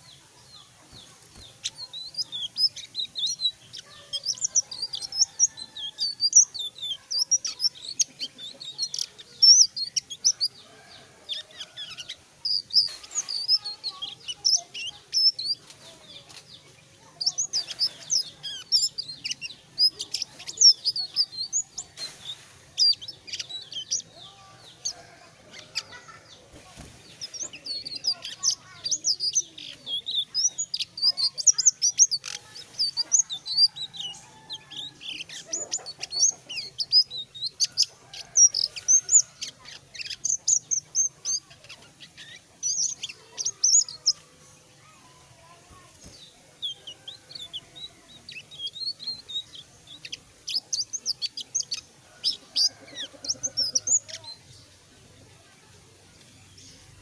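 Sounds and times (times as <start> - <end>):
songbird chirping and whistling: 0.9 - 25.9, 46.0 - 54.6.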